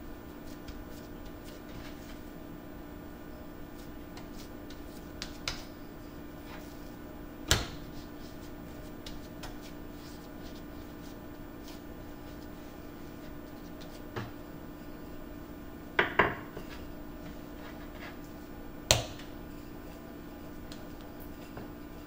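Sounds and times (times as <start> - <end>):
steady low hum: 0.0 - 22.0
hands shaping dough on board: 0.3 - 2.4, 3.5 - 14.6, 16.0 - 22.0
knock on cutting board: 16.0 - 16.4.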